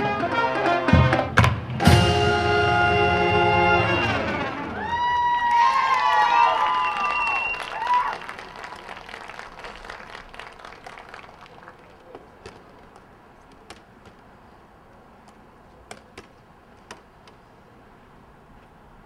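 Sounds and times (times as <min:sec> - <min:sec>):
band music: 0:00.0 - 0:05.2
crowd applause and cheering: 0:00.0 - 0:12.1.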